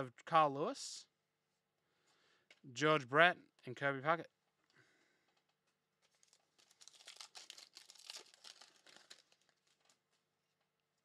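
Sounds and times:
cards rustling: 0:05.4 - 0:10.2
wrapper crinkling and tearing: 0:06.0 - 0:10.3.

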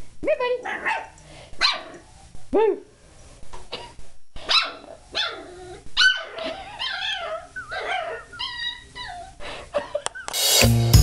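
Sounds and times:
puppy yipping and whining: 0:03.8 - 0:10.4.

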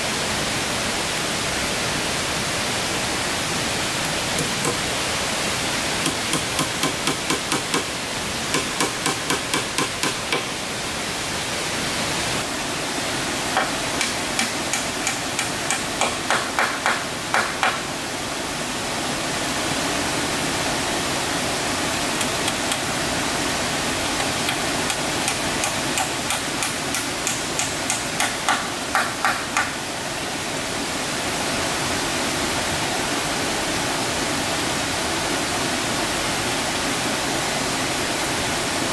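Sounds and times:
steady background hiss: 0:00.0 - 0:38.9
hammer striking wood: 0:04.0 - 0:04.8, 0:06.0 - 0:07.9, 0:08.5 - 0:10.5, 0:13.6 - 0:17.8, 0:24.4 - 0:29.8.

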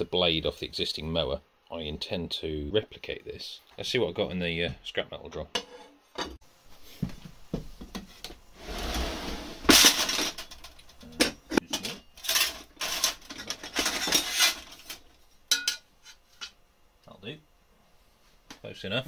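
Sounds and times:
scrap metal clinking and scraping: 0:08.6 - 0:16.6.

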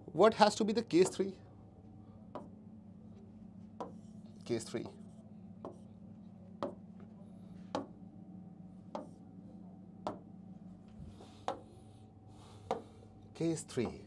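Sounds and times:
low hum: 0:00.0 - 0:14.0
stylus tapping on screen: 0:06.6 - 0:06.8, 0:08.9 - 0:09.2, 0:10.0 - 0:10.3.

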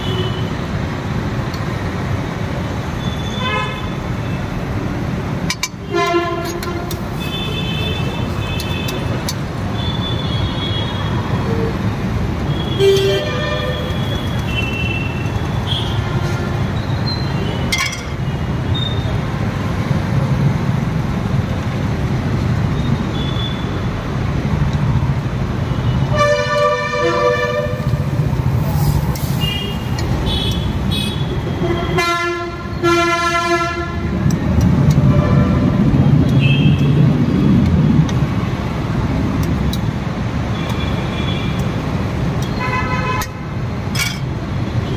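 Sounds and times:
roadside traffic: 0:00.0 - 0:44.9
vehicle horns honking: 0:05.8 - 0:09.1, 0:12.5 - 0:16.6, 0:25.9 - 0:28.0, 0:29.4 - 0:34.0.

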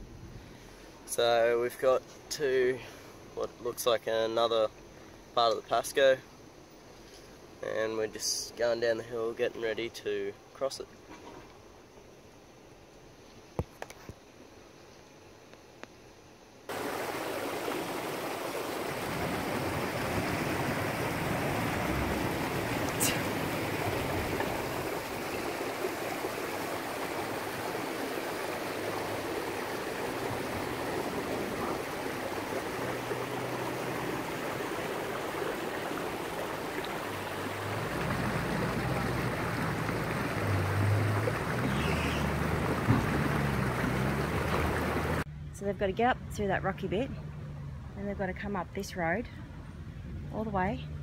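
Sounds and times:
river rushing over rocks: 0:16.7 - 0:45.2
vehicle engine drone: 0:19.2 - 0:25.2, 0:37.0 - 0:51.0.

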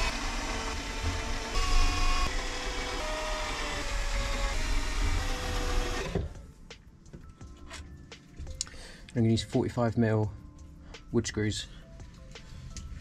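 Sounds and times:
cordless drill whining: 0:00.0 - 0:06.4.

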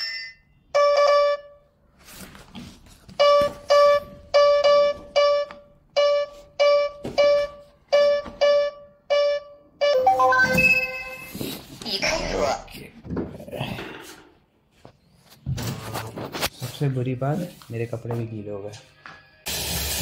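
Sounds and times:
repeated bell-like keyboard note: 0:03.7 - 0:11.3.

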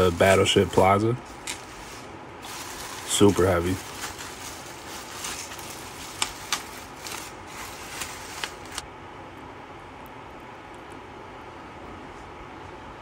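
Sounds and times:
bubble wrap crinkling: 0:00.0 - 0:08.8.

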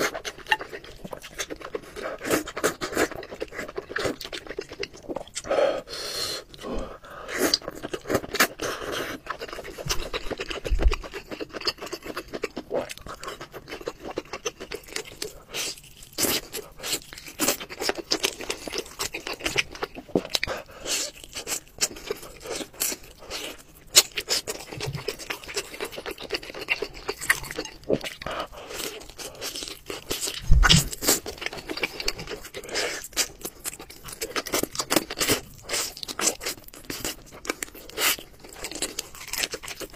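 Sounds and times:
chewing and crunching crab: 0:00.0 - 0:39.9
low thumps: 0:30.4 - 0:31.0.

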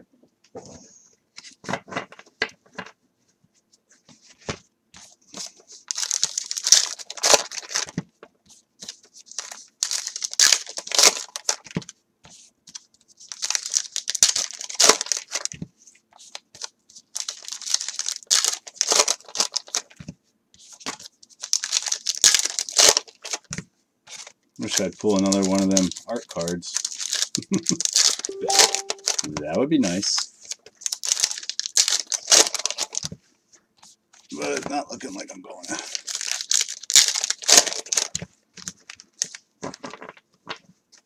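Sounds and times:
wrappers tearing and crinkling: 0:05.9 - 0:07.9, 0:09.3 - 0:11.7, 0:13.3 - 0:15.6, 0:17.2 - 0:20.0, 0:21.4 - 0:23.5, 0:24.1 - 0:28.9, 0:30.6 - 0:33.1, 0:35.8 - 0:40.1.

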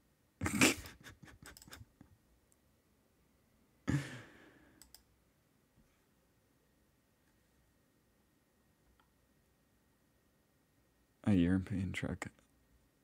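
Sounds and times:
breathy laughs through the nose: 0:00.4 - 0:02.1, 0:03.9 - 0:04.5
computer mouse clicks: 0:01.4 - 0:01.8, 0:04.8 - 0:05.1.

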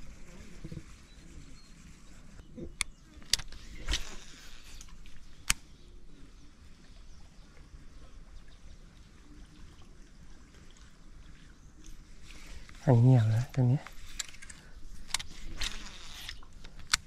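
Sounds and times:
faint outdoor background: 0:00.0 - 0:17.0
fishing reel clicking: 0:13.9 - 0:17.0.

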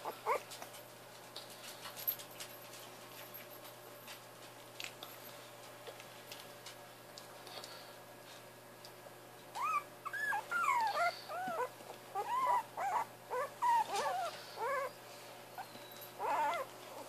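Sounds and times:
puppies whining and yelping: 0:00.0 - 0:00.6, 0:09.6 - 0:17.0.

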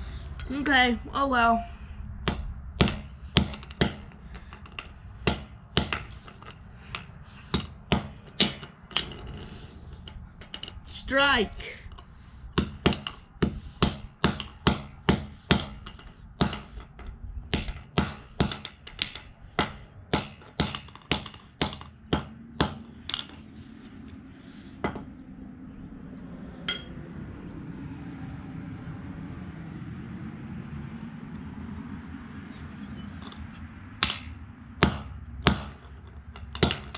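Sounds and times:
hammer striking on concrete: 0:02.3 - 0:09.1, 0:12.6 - 0:23.4, 0:34.0 - 0:36.9.

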